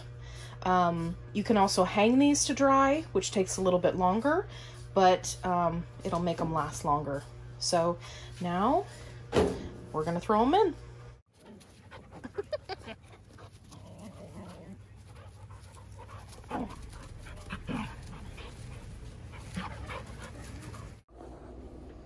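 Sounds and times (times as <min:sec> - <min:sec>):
dogs vocalizing: 0:11.4 - 0:21.0.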